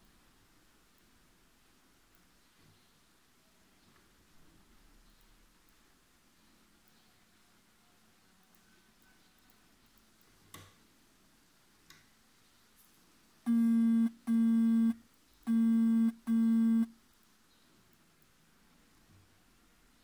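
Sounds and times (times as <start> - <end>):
electronic buzzer beeping: 13.5 - 16.9.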